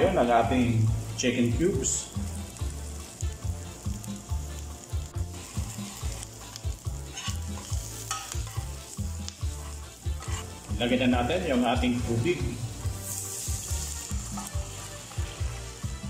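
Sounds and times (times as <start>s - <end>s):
onions and garlic sizzling: 0.0s - 16.0s
spoon scraping and knocking pan: 5.4s - 10.7s, 12.9s - 15.9s.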